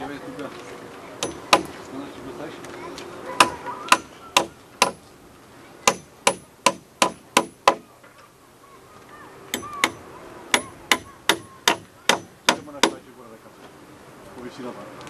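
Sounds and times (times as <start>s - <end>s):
hammer blows ringing: 1.2s - 1.8s, 3.4s - 5.0s, 5.8s - 7.9s, 9.5s - 13.0s.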